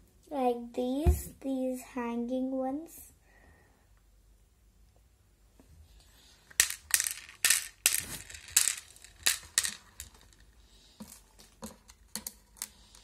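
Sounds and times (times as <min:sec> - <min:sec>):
beads clinking into plastic box: 0:06.5 - 0:13.0.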